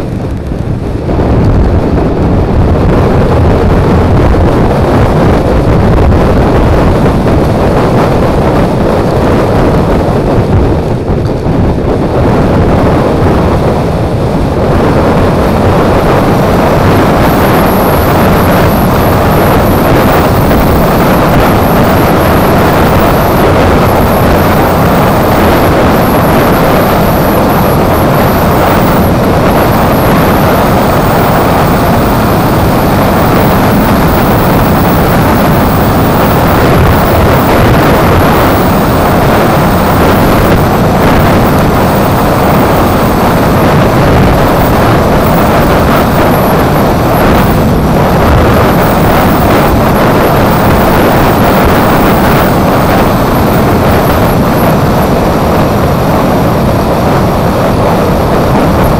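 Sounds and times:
wind rush over microphone: 0.0 - 58.9
thin high whine: 12.5 - 58.9.

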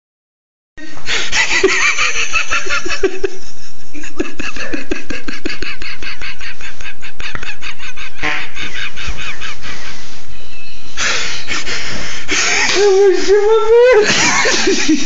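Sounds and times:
loud hearty laughter: 1.2 - 10.0, 11.3 - 13.0, 13.8 - 15.0.

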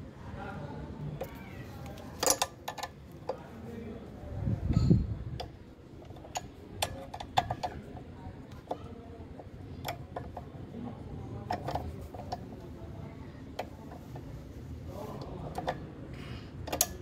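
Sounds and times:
hand tools clicking on metal bolts: 2.2 - 3.0, 5.4 - 7.8, 16.7 - 17.0.

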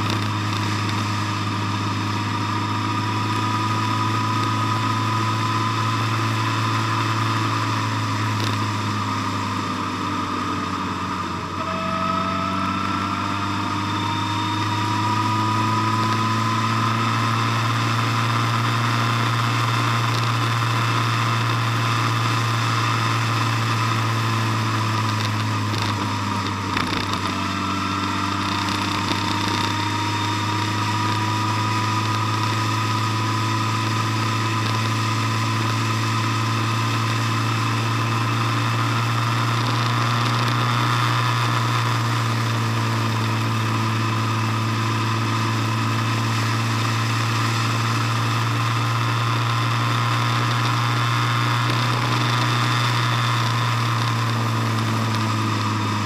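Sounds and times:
faint rising whine: 0.0 - 38.7
road noise: 0.0 - 56.0
vehicle engine droning: 0.0 - 56.0.

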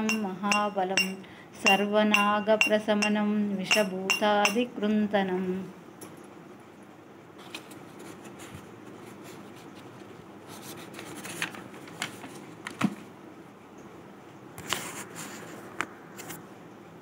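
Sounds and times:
paper pages rustling: 7.4 - 12.8.

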